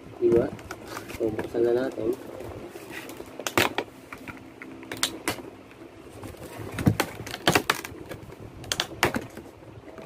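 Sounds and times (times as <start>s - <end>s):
plastic packaging crackling: 6.2s - 9.2s.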